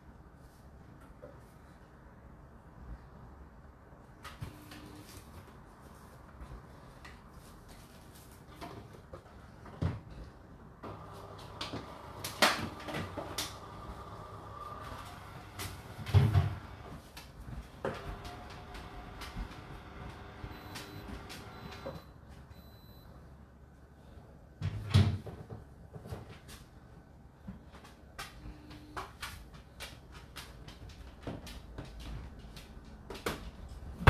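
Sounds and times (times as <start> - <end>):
dishwasher washing: 10.9 - 17.1.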